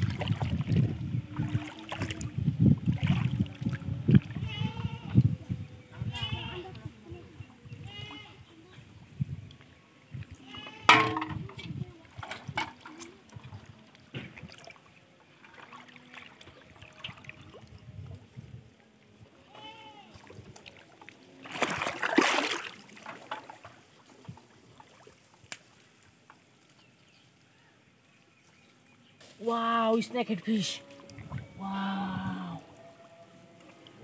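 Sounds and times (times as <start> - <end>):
shallow water sloshing and splashing: 0.0 - 5.1, 10.9 - 18.5, 19.5 - 26.6, 30.2 - 31.6.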